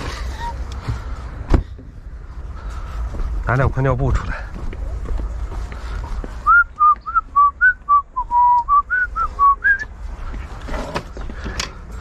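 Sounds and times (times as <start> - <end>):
person whistling a tune: 6.4 - 9.9.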